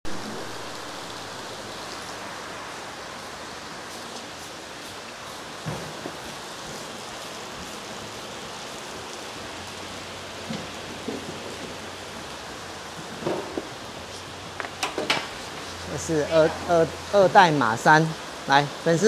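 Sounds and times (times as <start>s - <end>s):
steady rushing noise: 0.0s - 19.0s.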